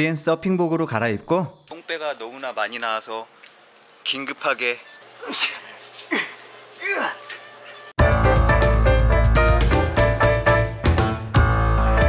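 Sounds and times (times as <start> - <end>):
bass line: 8.0 - 12.0
piano or keyboard notes: 8.0 - 12.0.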